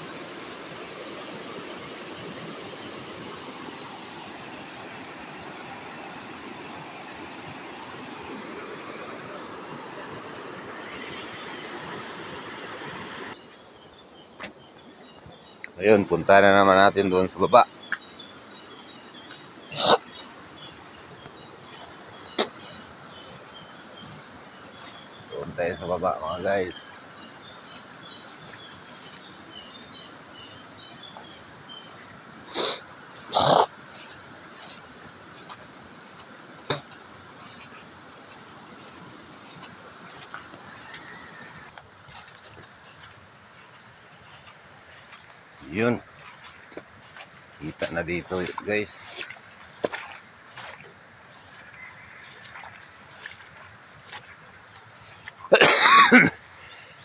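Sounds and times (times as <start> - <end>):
footsteps through wet grass: 13.3 - 56.5
high insect buzz: 17.6 - 57.0
loud animal calls: 32.4 - 34.9
person coughing: 55.4 - 56.4.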